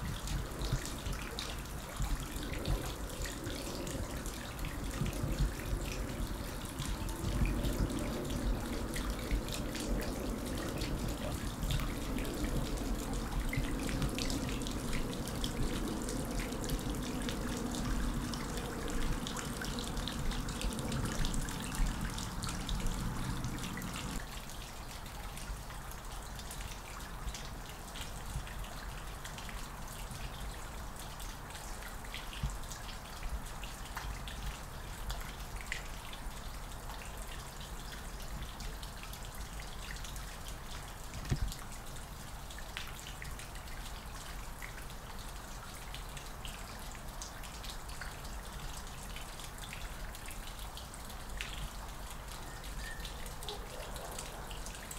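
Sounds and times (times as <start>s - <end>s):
running water: 0.0s - 54.9s
water dripping: 0.0s - 54.9s
steady low rumble: 0.2s - 24.2s.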